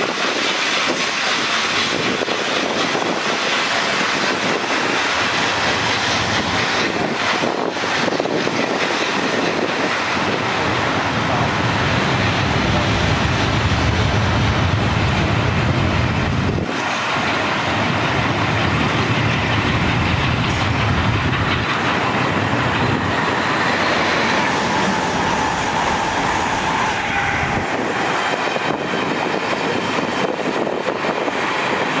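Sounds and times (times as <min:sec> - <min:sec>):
train rumbling past: 0:00.0 - 0:32.0
wheels clattering over rail joints: 0:16.6 - 0:32.0.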